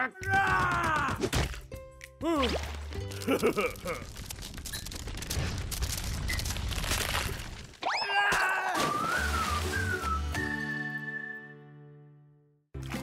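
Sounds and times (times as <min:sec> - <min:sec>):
cartoon ice cracking: 0:02.4 - 0:10.4.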